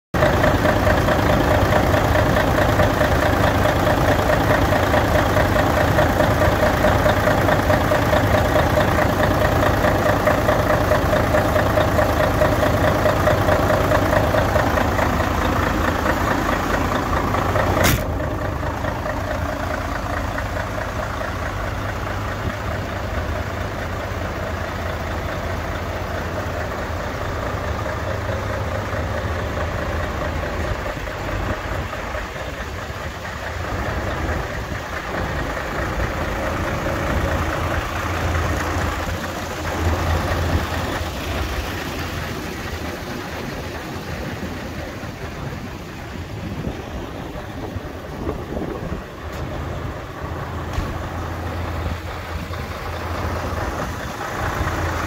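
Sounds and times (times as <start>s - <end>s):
diesel engine idling: 0.2s - 55.0s
sharp click: 17.8s - 18.1s.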